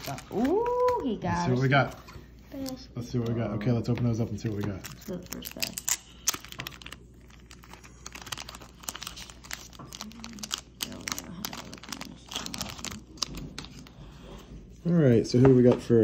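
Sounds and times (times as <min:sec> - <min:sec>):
plastic bag crinkling: 0:00.0 - 0:01.8, 0:04.2 - 0:14.3.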